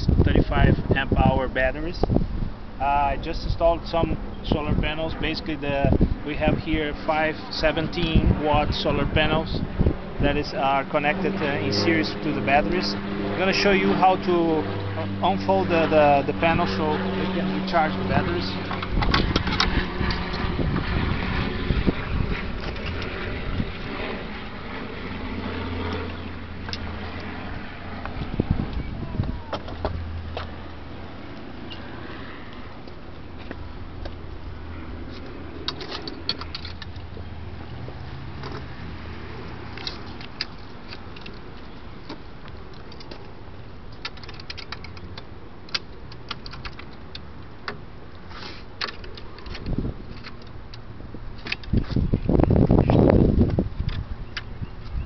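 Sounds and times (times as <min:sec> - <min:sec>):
wind buffeting microphone: 0:00.0 - 0:31.0, 0:49.5 - 0:50.1, 0:51.0 - 0:55.0.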